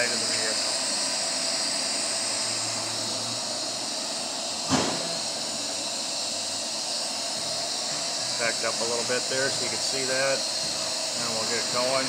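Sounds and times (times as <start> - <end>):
hissing room noise: 0.0 - 12.0
sharp knock: 4.7 - 5.2.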